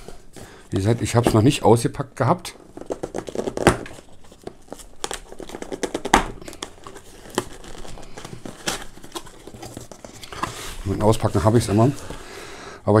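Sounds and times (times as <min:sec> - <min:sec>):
cardboard scraping and rustling: 0:02.6 - 0:12.4.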